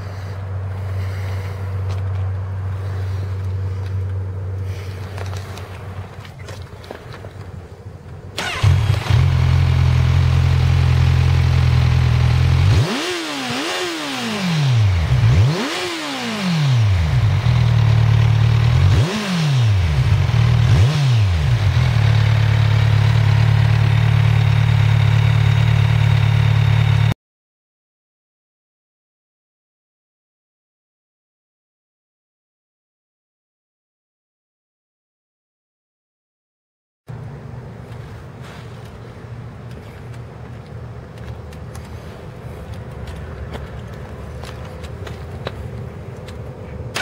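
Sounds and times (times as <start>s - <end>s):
motorcycle engine idling and revving: 0.0s - 7.5s, 8.1s - 27.2s, 37.1s - 47.0s.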